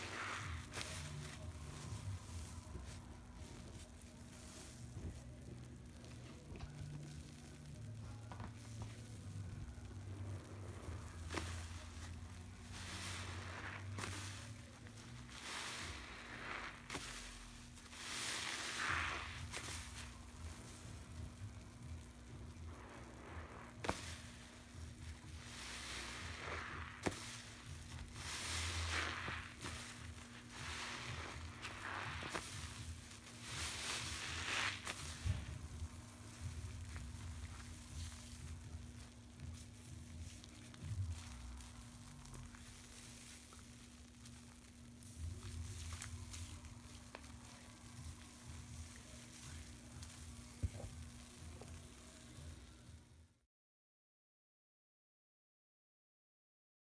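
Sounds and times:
wet sponge squelching: 0:00.0 - 0:07.7, 0:08.4 - 0:52.0
soap bubbles fizzing and crackling: 0:00.0 - 0:52.6.

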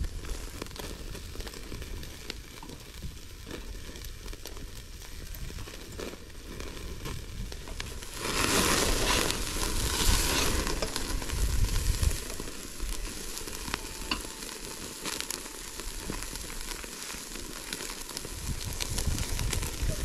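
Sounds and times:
crackles and pops: 0:00.0 - 0:20.0
food sizzling over fire: 0:00.0 - 0:20.0.

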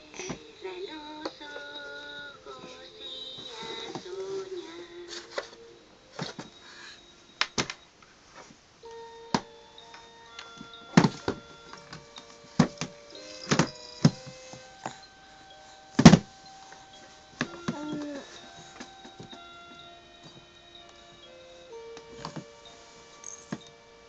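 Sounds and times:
electronic toy beeping tune: 0:08.8 - 0:24.0
plastic toys knocking: 0:12.6 - 0:14.4.

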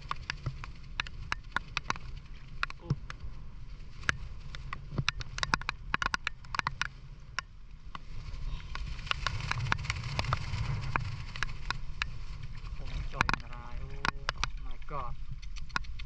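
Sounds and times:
sharp taps and clicks: 0:00.0 - 0:03.2, 0:04.0 - 0:08.0, 0:13.1 - 0:16.0
low rumble: 0:00.0 - 0:16.0.

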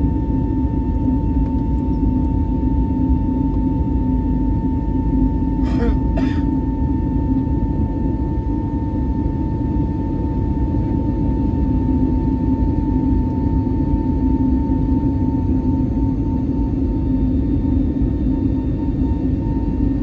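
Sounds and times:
low hum: 0:00.0 - 0:11.8
jet engine roar in cabin: 0:00.0 - 0:20.0.

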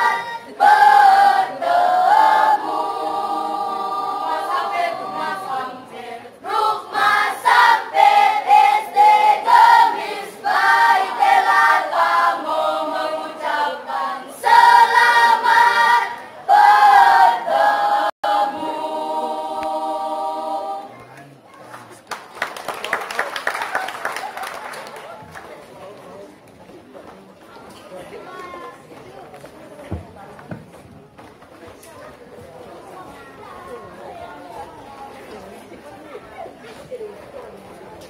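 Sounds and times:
children's choir singing unaccompanied: 0:00.0 - 0:21.4.

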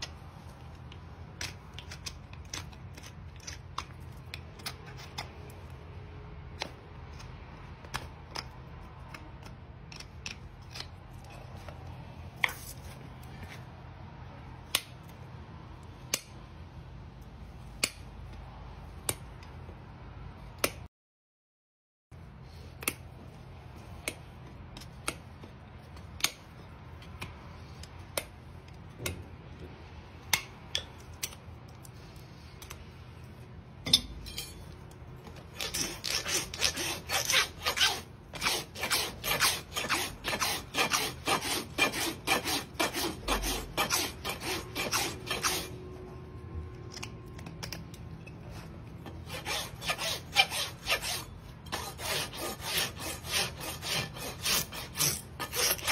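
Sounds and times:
hoof rasp filing: 0:35.4 - 0:45.9, 0:49.0 - 0:55.9.

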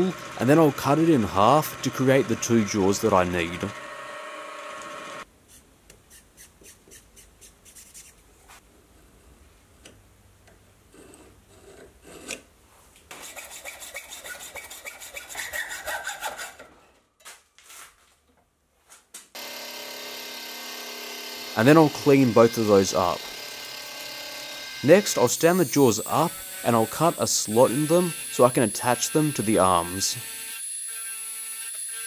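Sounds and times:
hacksaw sawing steel: 0:00.0 - 0:04.0, 0:13.1 - 0:16.7, 0:19.4 - 0:32.0
milling machine humming: 0:00.0 - 0:05.2
marker rubbing on steel: 0:05.5 - 0:08.2.

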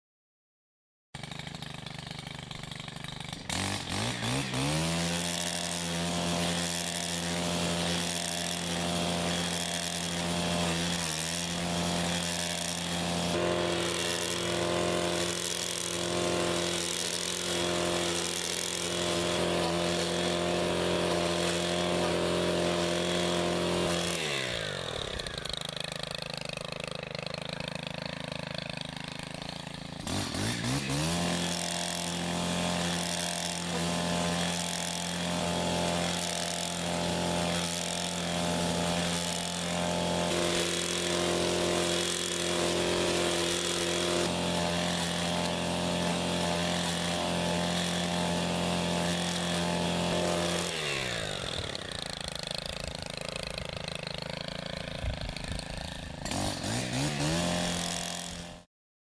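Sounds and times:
brushcutter engine revving: 0:01.2 - 0:58.7.

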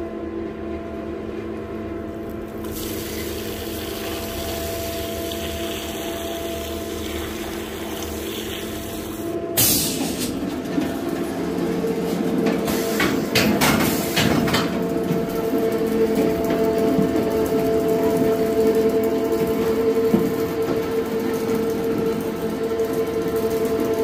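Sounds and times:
machine motor hum: 0:02.2 - 0:09.6.

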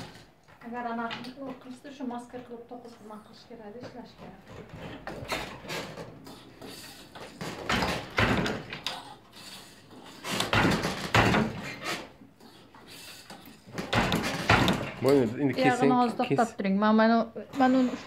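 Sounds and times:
wooden handloom clattering: 0:10.2 - 0:11.9, 0:13.6 - 0:15.5.

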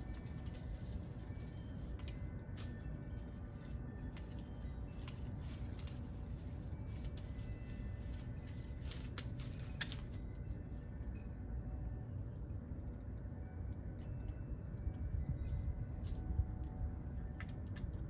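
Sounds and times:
dog chewing twigs: 0:00.0 - 0:10.6
low rumble of wind: 0:00.0 - 0:18.0.

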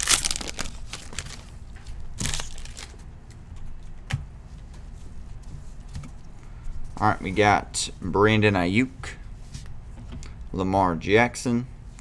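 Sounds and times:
sharp wrapper crackles: 0:00.0 - 0:01.5, 0:02.2 - 0:03.0
foil wrapper crinkling: 0:00.0 - 0:01.6, 0:02.2 - 0:03.0.

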